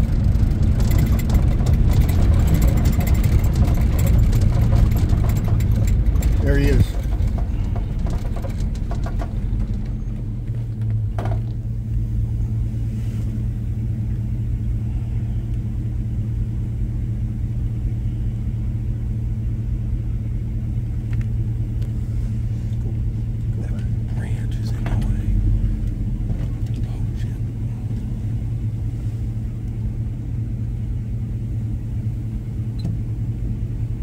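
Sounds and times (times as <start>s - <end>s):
vehicle engine idling: 0.0s - 34.0s.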